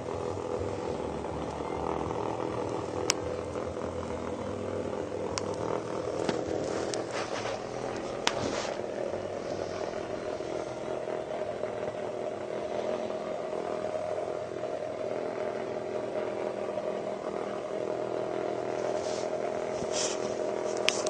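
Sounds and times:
vibrating toys buzzing on plastic: 0.0 - 21.0
sharp clicks: 5.3 - 7.1.

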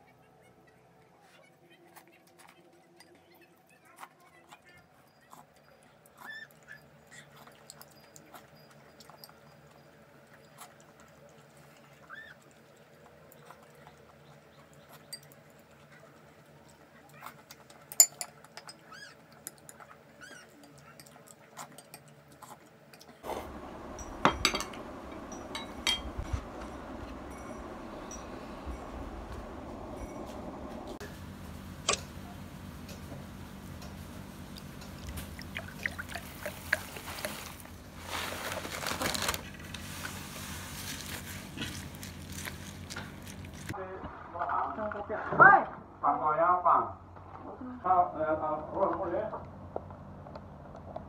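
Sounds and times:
chewing and sipping: 3.8 - 31.0, 33.8 - 37.9, 39.4 - 43.8
utensils clinking on dishes: 4.6 - 10.9, 17.7 - 22.2, 22.9 - 31.0
steady hiss: 23.2 - 31.9.

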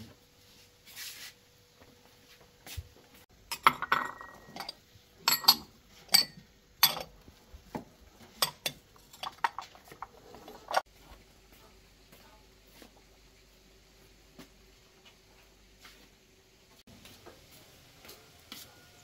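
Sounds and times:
ceramic bowls clinking: 3.5 - 7.2, 8.1 - 10.9.

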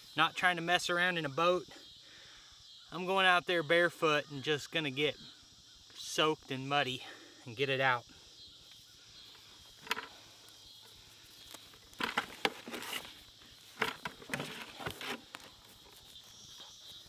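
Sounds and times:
insects chirring: 0.0 - 17.0
hose rustling and knocking: 9.8 - 10.1, 11.8 - 15.7.

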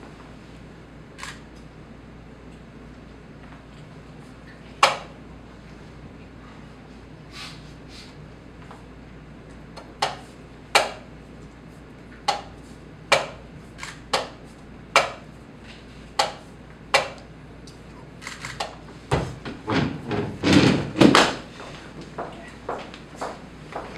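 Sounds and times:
slap on chess clock: 4.8 - 5.1, 10.8 - 11.0, 13.1 - 13.4, 14.1 - 14.4, 15.0 - 15.2, 16.2 - 16.4, 17.0 - 17.2.

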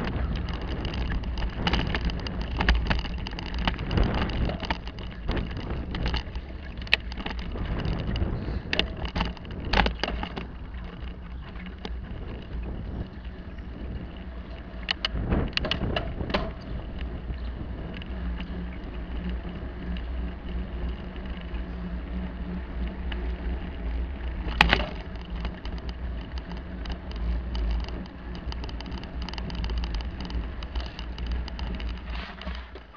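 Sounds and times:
bicycle rattles and knocks: 0.0 - 32.9
bicycle rumbling over paving: 0.0 - 32.9.

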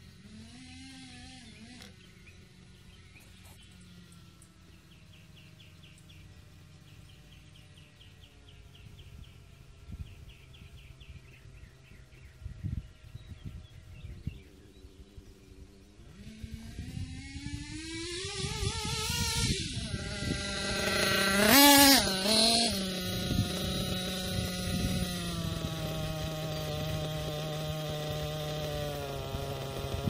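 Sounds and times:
distant model engine running: 0.0 - 30.0
bird chirping: 1.4 - 16.4.

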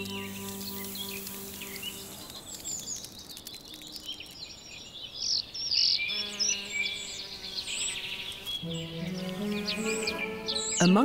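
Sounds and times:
soft sustained background music: 0.0 - 2.5, 8.6 - 11.0
songbirds chirping and warbling: 0.0 - 11.0.

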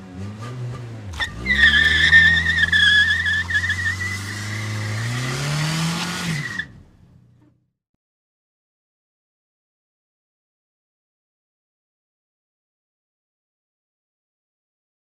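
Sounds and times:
car engine running: 0.0 - 7.6
car tyres squealing in skid: 1.2 - 7.1.

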